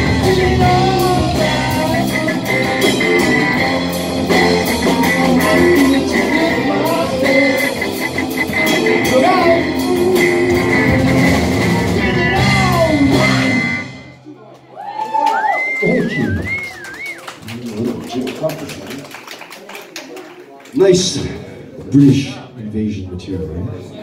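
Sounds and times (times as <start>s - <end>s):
male lead vocal: 0.0s - 11.2s, 12.0s - 13.6s
live rock band playing: 0.0s - 14.2s.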